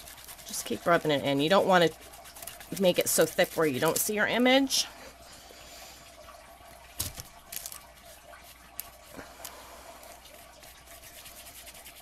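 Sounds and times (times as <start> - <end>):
finger rubbing paper: 0.0 - 4.1, 10.3 - 12.0.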